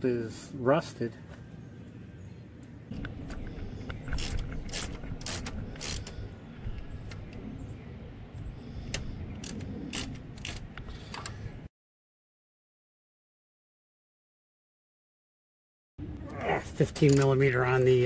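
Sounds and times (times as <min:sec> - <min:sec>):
socket ratchet clicking: 0:04.2 - 0:06.2, 0:09.4 - 0:11.3.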